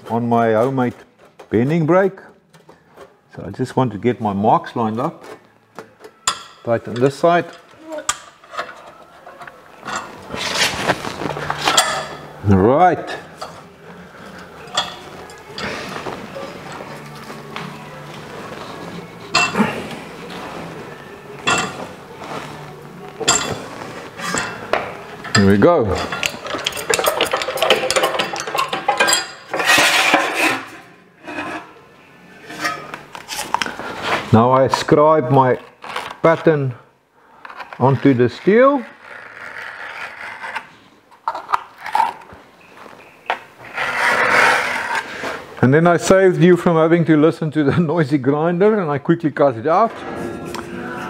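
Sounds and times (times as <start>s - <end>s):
scriber scraping sheet steel: 29.0s - 34.3s, 43.6s - 45.4s.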